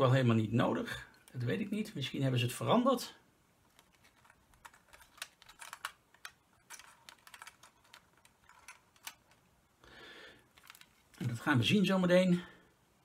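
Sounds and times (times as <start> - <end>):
plastic parts clicking: 3.7 - 9.5, 10.5 - 11.4.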